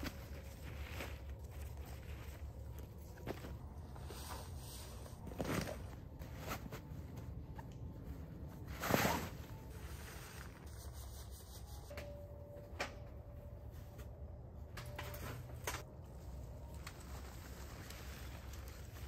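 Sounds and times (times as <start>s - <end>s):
camping gear rustling: 0.0s - 10.7s.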